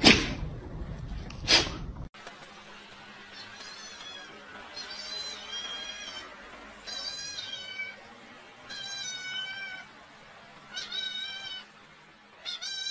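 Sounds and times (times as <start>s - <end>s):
cat meowing: 6.9s - 8.0s, 8.7s - 9.9s, 10.7s - 11.7s, 12.4s - 12.9s.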